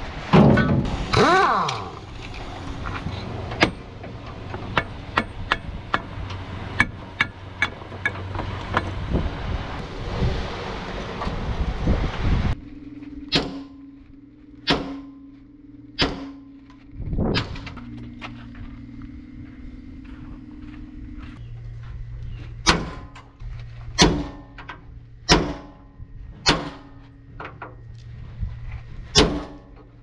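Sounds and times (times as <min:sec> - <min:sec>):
steady hum: 0:00.0 - 0:30.0
sledgehammer blows on steel: 0:14.6 - 0:15.3, 0:16.0 - 0:16.6.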